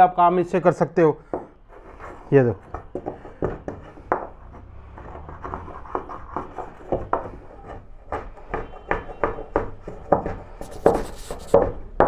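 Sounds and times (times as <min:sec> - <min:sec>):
hand plane scraping wood: 0:03.7 - 0:08.5, 0:10.1 - 0:11.7.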